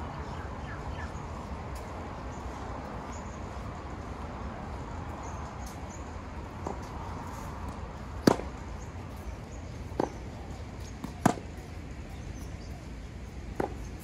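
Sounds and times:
tennis racket hitting ball: 8.2 - 8.5.

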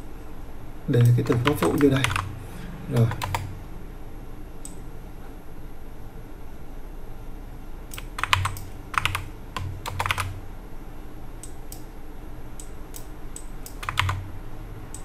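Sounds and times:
typing on a keyboard: 1.0 - 2.3, 3.0 - 3.5, 7.9 - 10.4, 13.7 - 14.2.

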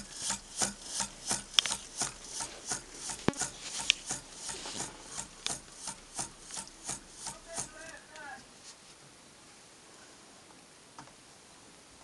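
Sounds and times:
hot-air engine rasping strokes: 0.0 - 8.2
sharp clicks: 0.0 - 8.3.

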